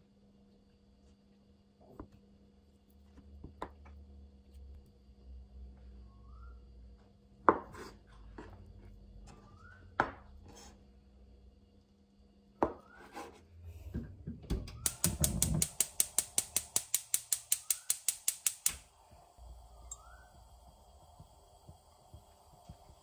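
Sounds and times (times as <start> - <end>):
spark igniter clicking: 14.8 - 18.9.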